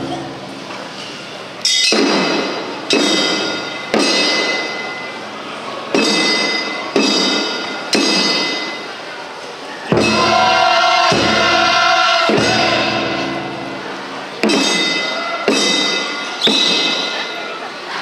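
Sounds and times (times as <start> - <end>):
drum and gong strokes: 9.9 - 16.9.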